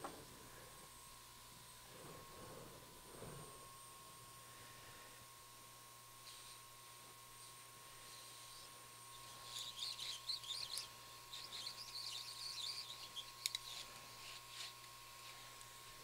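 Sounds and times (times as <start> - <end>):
solder crackling and squeaking: 8.5 - 15.1.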